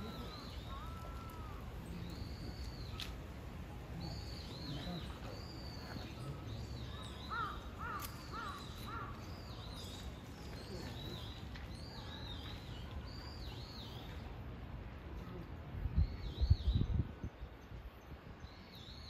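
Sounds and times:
high chirping calls: 0.0 - 3.2, 3.9 - 14.3.

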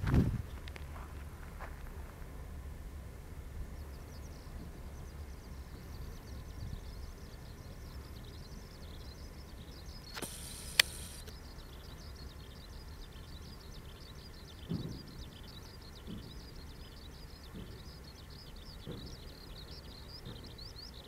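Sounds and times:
wind rumbling on microphone: 0.0 - 21.0
faint high chirping: 3.7 - 21.0
sharp click: 10.1 - 11.4
short hiss: 10.1 - 11.4.

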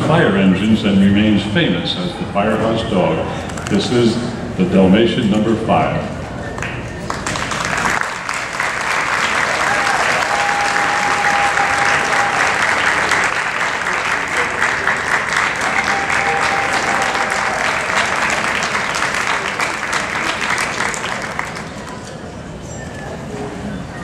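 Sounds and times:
crowd applauding: 6.6 - 22.2.

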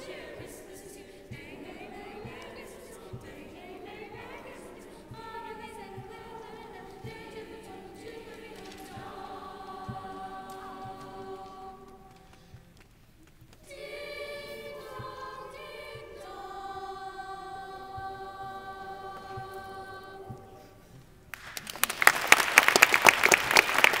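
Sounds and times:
children's choir singing: 0.0 - 12.3, 13.6 - 21.0
audience applause: 21.3 - 24.0.

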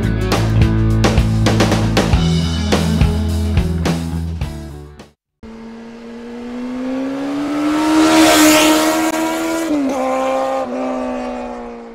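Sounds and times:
high-revving racing engine: 5.4 - 11.9.

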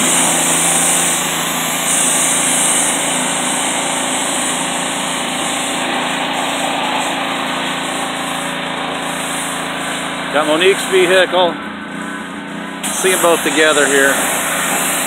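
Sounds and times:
high-pressure water jet hiss: 0.0 - 15.0
pressure washer engine humming: 0.0 - 15.0.

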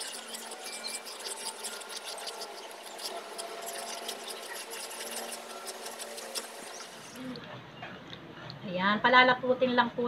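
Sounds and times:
spatula scraping a pan: 0.0 - 7.2.

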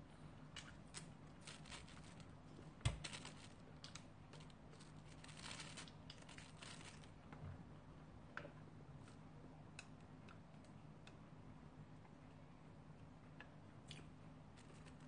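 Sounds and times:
plastic wrapping rustling: 0.6 - 7.2.

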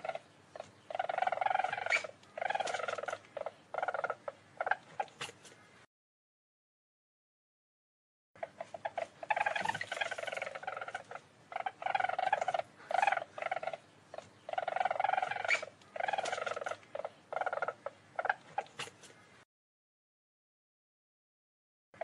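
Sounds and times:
weasel trilling: 0.0 - 5.7, 8.4 - 19.4.

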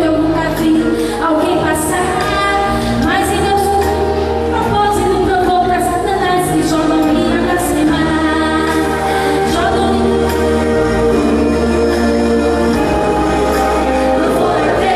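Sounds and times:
woman singing into a microphone: 0.0 - 11.0
instrumental backing with bass: 0.0 - 14.9.

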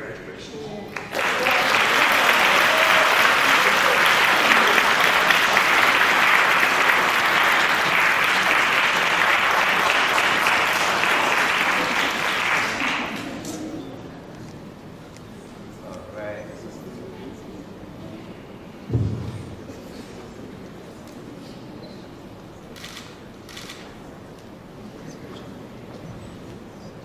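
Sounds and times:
audience applauding: 0.9 - 13.5.

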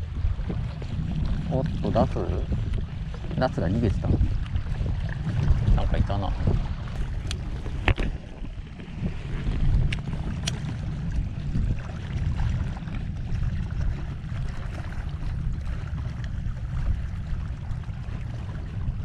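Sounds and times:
water lapping: 0.0 - 19.0
wind rumbling on microphone: 0.0 - 19.0.

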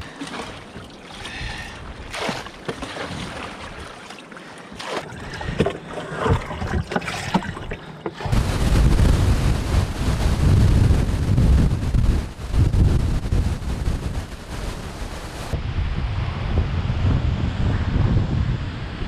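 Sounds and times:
water splashing from bailer: 0.0 - 11.7
wind on microphone: 5.1 - 19.0.

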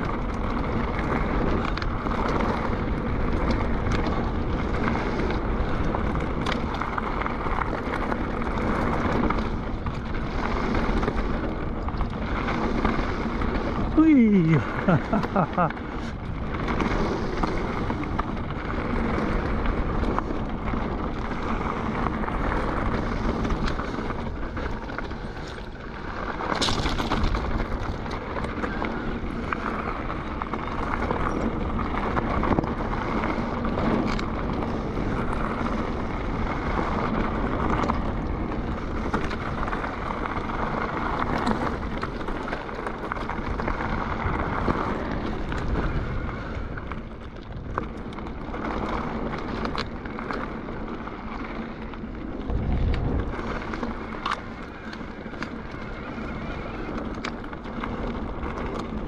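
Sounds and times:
bike tyres rolling over stones: 0.0 - 59.0
wind buffeting microphone: 0.0 - 59.0
bike knocks and rattles: 14.9 - 59.0.

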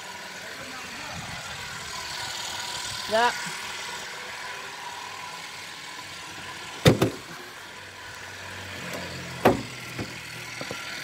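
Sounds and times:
sharp knocks: 6.8 - 7.2, 9.4 - 10.8.

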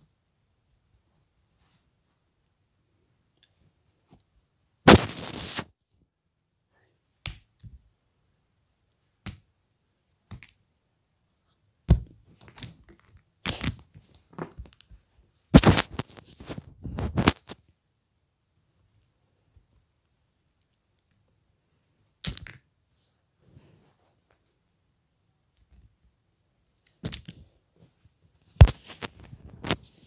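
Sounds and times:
rustling: 4.9 - 5.7.

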